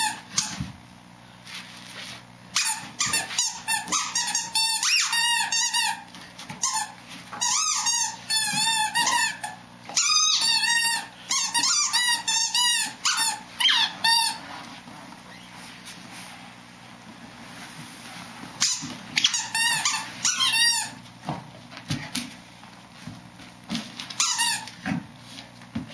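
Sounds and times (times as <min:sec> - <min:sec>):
squeaky toy squeaking: 0:02.6 - 0:06.0, 0:06.6 - 0:14.4, 0:18.6 - 0:21.0, 0:24.2 - 0:24.7.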